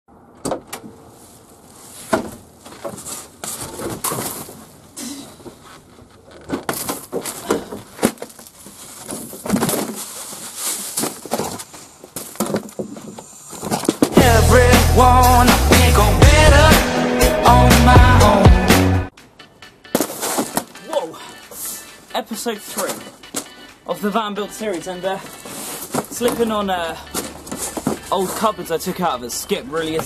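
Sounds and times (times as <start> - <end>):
loose items clattering: 24.6 - 30.0.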